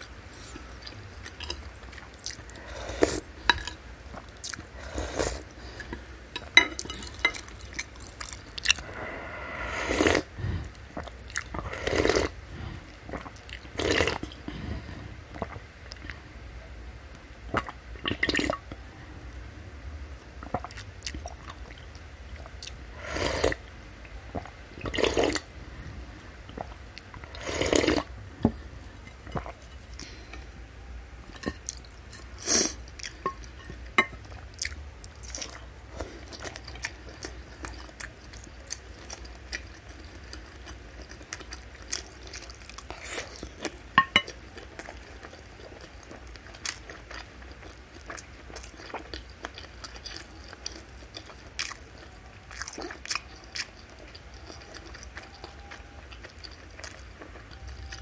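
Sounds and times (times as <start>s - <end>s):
slurping soup: 2.2s - 3.7s, 4.6s - 6.1s, 8.6s - 10.4s, 11.4s - 12.4s, 22.9s - 23.6s, 24.8s - 25.5s, 26.6s - 28.2s
wet chewing with smacks: 34.3s - 58.0s.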